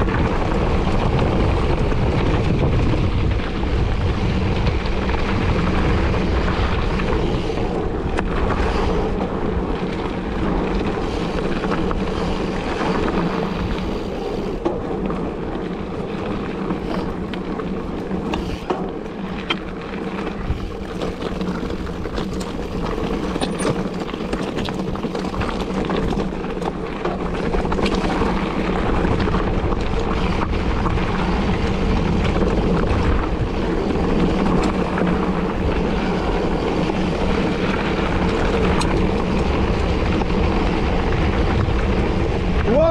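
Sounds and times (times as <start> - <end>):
bike tyres rolling on dirt: 0.0 - 42.9
wind buffeting microphone: 0.0 - 42.9.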